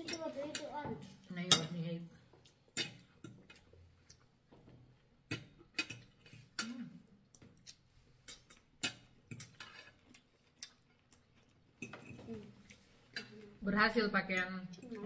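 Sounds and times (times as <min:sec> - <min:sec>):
cutlery clinking on plates: 0:02.7 - 0:03.8, 0:05.3 - 0:06.7, 0:08.3 - 0:10.0, 0:11.8 - 0:12.4.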